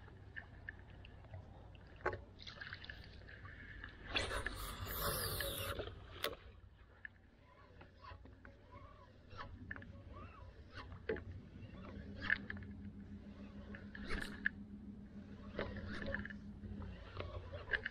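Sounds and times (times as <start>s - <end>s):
faint low hum: 0.0s - 17.9s.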